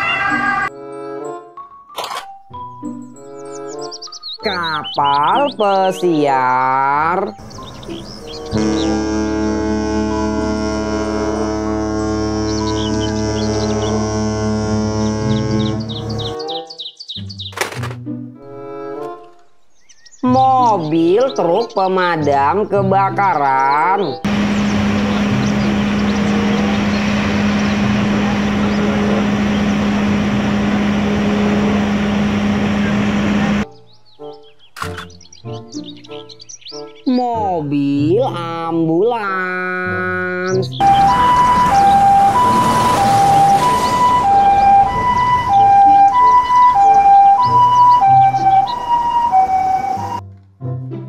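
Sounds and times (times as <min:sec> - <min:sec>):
ambulance two-tone siren: 0:00.0 - 0:00.8, 0:08.4 - 0:16.4, 0:24.2 - 0:33.7, 0:40.8 - 0:50.2
fire engine low drone: 0:07.3 - 0:16.4, 0:24.2 - 0:33.7, 0:40.8 - 0:50.2
water stream rushing: 0:24.3 - 0:33.6, 0:40.8 - 0:45.6.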